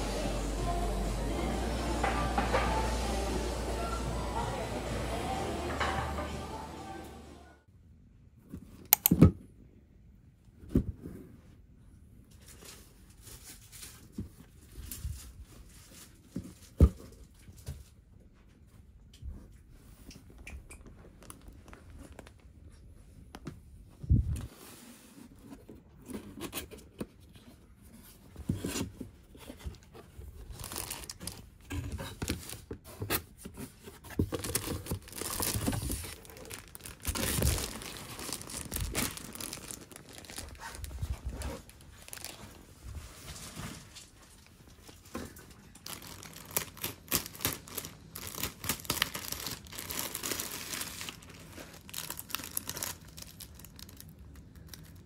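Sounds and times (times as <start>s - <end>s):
plastic packaging crinkling: 30.4s - 31.5s, 34.2s - 55.0s
cardboard scraping and tearing: 32.0s - 42.6s.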